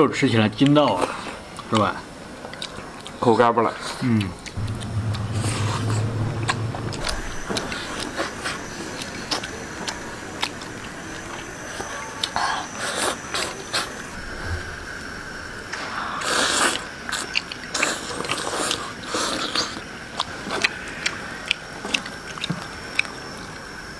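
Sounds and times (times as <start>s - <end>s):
chewing and slurping: 16.2s - 23.5s.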